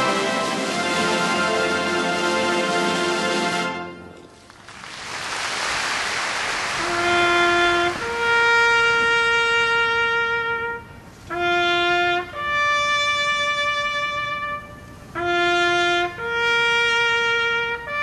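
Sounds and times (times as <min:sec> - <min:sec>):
solo trumpet bugle call: 0:06.8 - 0:18.0.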